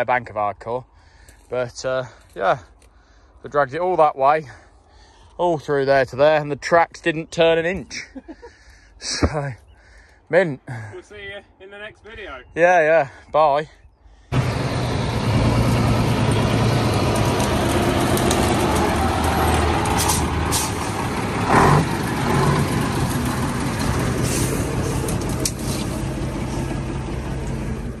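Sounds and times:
truck engine running: 14.3s - 28.0s.

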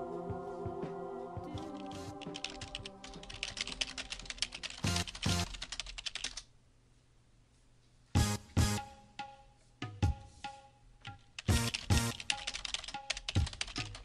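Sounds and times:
keyboard typing: 1.6s - 6.5s, 11.1s - 14.0s.

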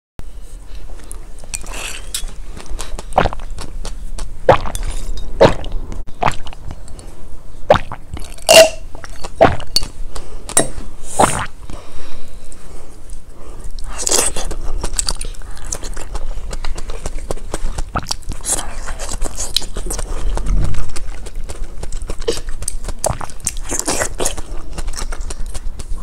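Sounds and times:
wet mouth clicks: 13.7s - 26.0s.

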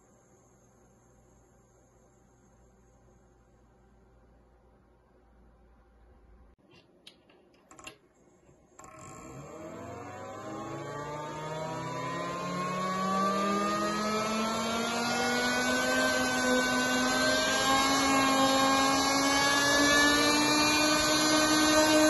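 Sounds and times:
fans whining spinning up: 8.7s - 22.0s.

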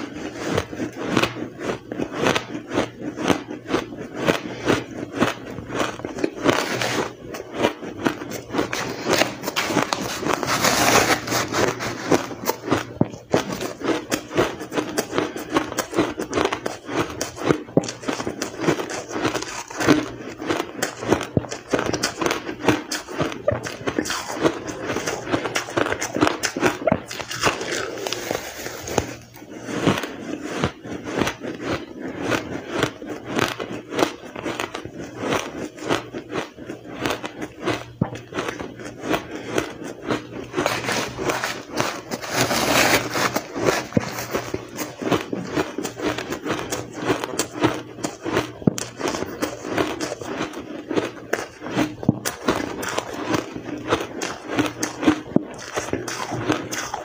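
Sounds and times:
chewing crushed ice: 0.0s - 57.0s.

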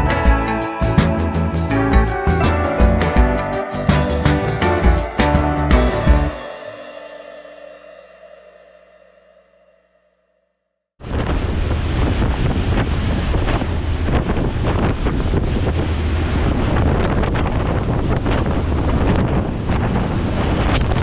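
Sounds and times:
heavy wind buffeting microphone: 11.0s - 21.0s.

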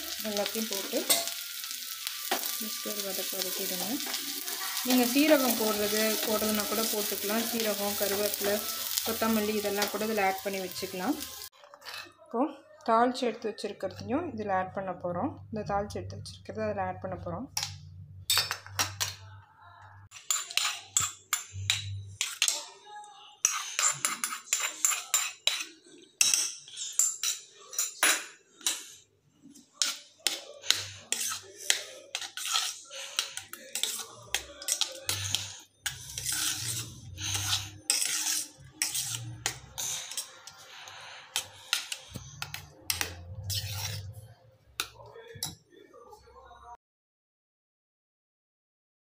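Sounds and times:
spoon scraping metal pot: 0.1s - 1.4s, 2.2s - 12.2s, 20.1s - 22.6s, 23.4s - 29.0s, 29.8s - 45.6s.

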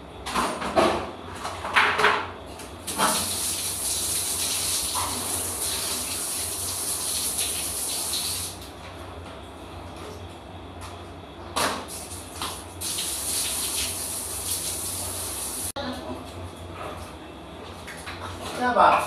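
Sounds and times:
water jet hissing: 2.9s - 8.6s, 12.8s - 15.7s.

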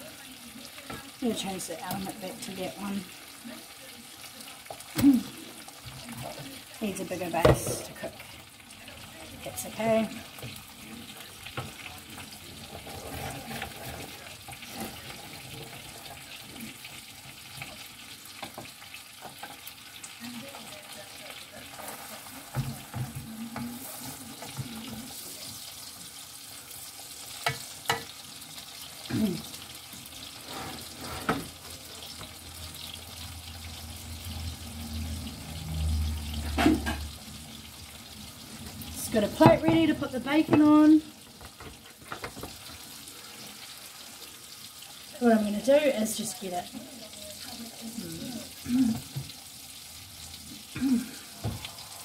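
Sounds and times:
food sizzling in a frying pan: 0.0s - 52.0s
wooden utensil scraping a pan: 11.5s - 17.0s, 21.6s - 25.7s, 29.9s - 32.3s, 39.0s - 43.5s.

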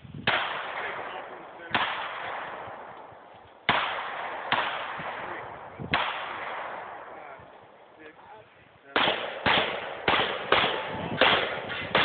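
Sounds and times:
gunshots: 0.2s - 7.9s, 8.9s - 12.0s.

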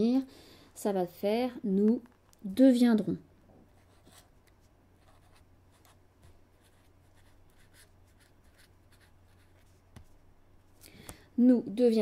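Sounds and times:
low steady hum: 0.0s - 12.0s
pen scratching on paper: 6.6s - 9.7s.

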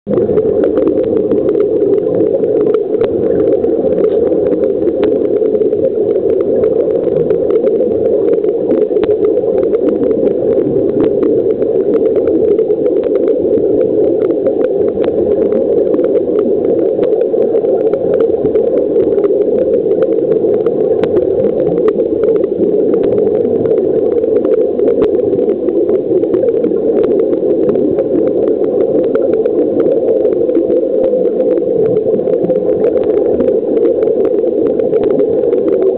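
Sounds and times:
muffled underwater hum: 0.0s - 35.9s
small clicks and crackles: 0.1s - 35.9s.

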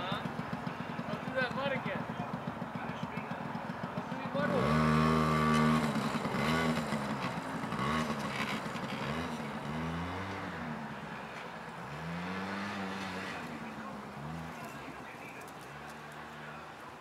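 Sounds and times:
small engine revving: 0.0s - 16.8s.

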